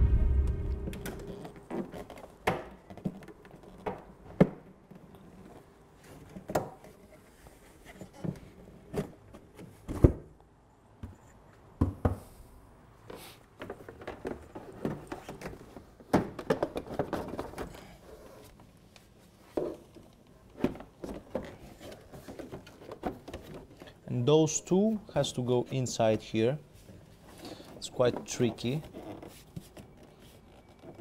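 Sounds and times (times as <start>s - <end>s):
plastic scraping and rustling: 13.1s - 24.1s, 26.8s - 31.0s.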